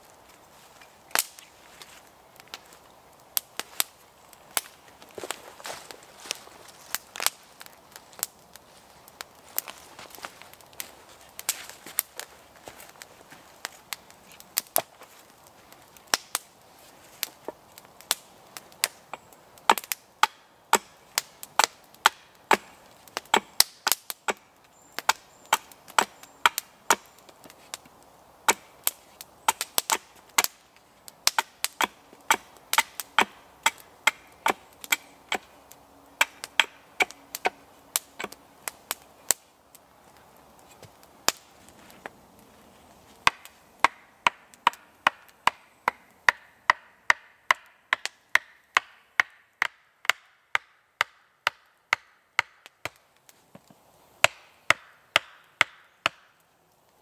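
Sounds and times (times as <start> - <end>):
hatchet chopping wood: 19.7 - 21.0, 21.6 - 24.4, 25.1 - 27.1, 28.5 - 28.7, 31.3 - 35.5, 36.2 - 38.4, 43.2 - 53.0, 54.2 - 56.3.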